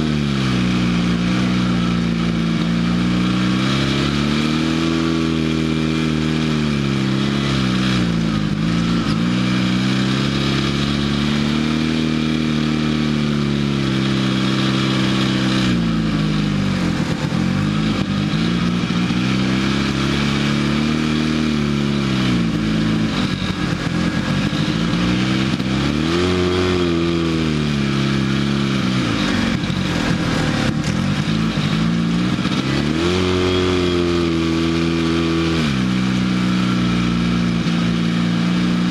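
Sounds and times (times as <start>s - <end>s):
off-road vehicle engine revving: 0.0s - 38.9s.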